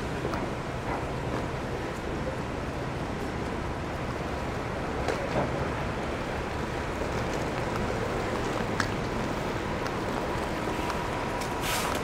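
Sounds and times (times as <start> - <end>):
traffic engines: 0.0 - 12.0
tyre hiss on wet pavement: 10.5 - 12.0.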